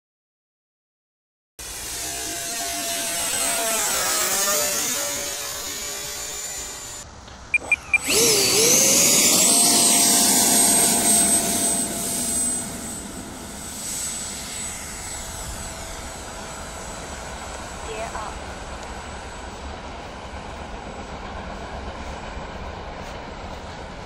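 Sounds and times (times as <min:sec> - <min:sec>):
electric ducted fan whine: 0:01.6 - 0:24.0
fan spooling up: 0:01.6 - 0:24.0
short beeps: 0:07.5 - 0:08.1.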